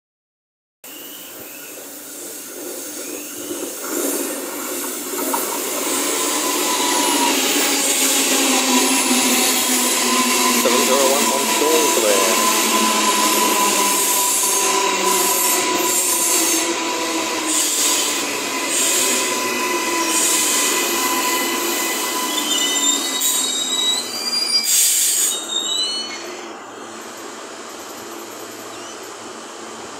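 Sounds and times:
electric train whine: 0.9 - 29.9
stopped train humming: 0.9 - 29.9
high whistling tones: 5.7 - 26.3.

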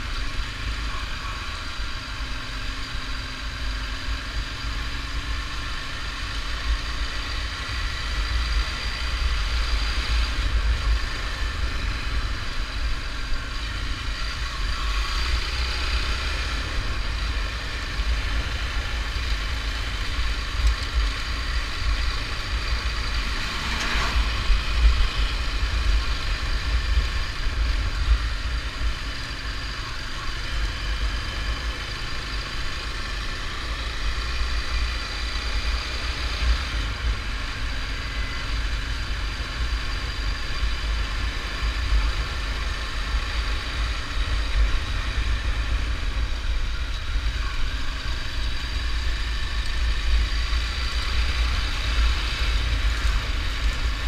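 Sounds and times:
motorcycle engine running: 0.0 - 54.0
wind and road rumble: 0.0 - 54.0.

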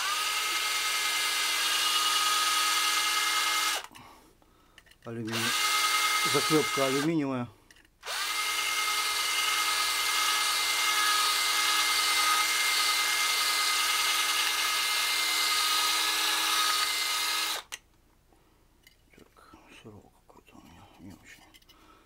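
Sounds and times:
cordless drill running: 0.0 - 3.9, 5.3 - 7.2, 8.0 - 17.8.

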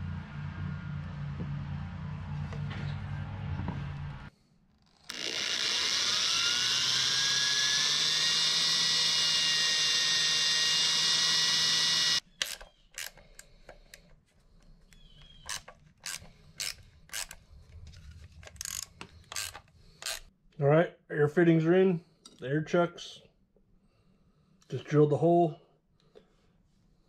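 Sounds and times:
power drill boring a hole: 4.8 - 13.2.

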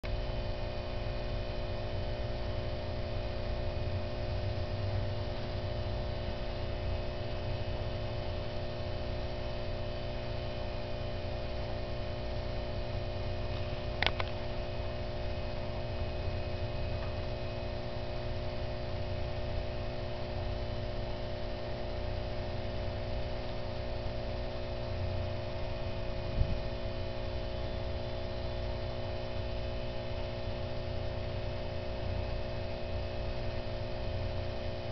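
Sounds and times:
electrical hum: 0.0 - 34.9
sharp click: 14.0 - 14.4.

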